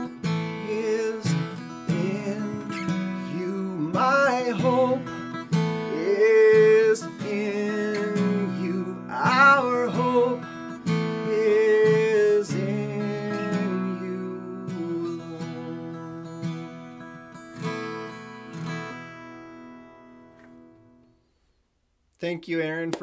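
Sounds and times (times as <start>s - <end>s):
man singing: 0.0s - 16.8s
acoustic guitar strumming: 0.0s - 21.2s.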